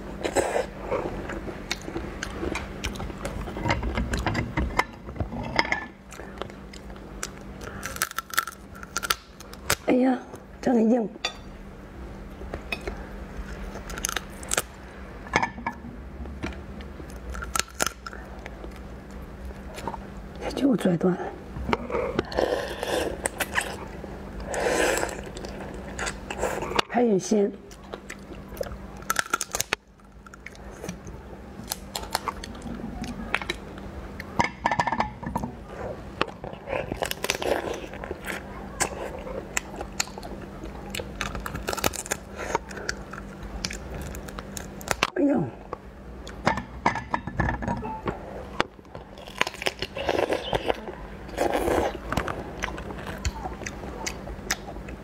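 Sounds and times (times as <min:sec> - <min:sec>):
shrimp shell cracking: 0:07.2 - 0:09.9, 0:17.2 - 0:18.5, 0:29.0 - 0:31.0, 0:41.0 - 0:45.1
chewing: 0:27.7 - 0:34.3, 0:35.6 - 0:45.1, 0:49.0 - 0:55.0.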